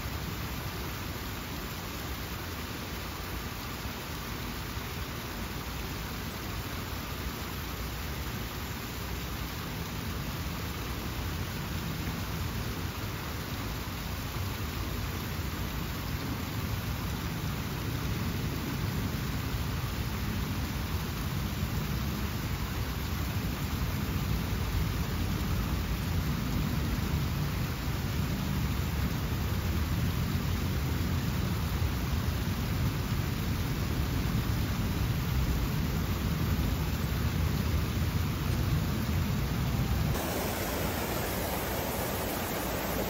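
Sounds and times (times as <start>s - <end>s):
fountain water splashing: 0.0s - 43.0s.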